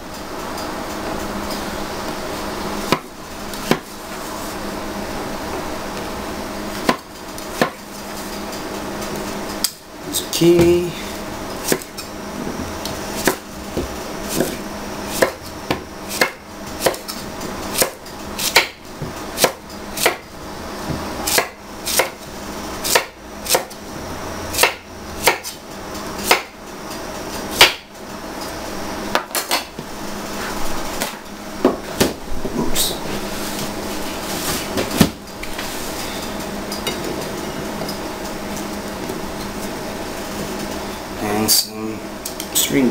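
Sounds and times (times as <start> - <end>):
knife chopping on wooden board: 2.9 - 3.9, 6.8 - 7.8, 11.7 - 11.9, 13.2 - 17.2, 17.8 - 20.2, 20.9 - 22.2, 22.9 - 23.7, 24.6 - 25.6, 26.2 - 26.5, 27.6 - 27.8.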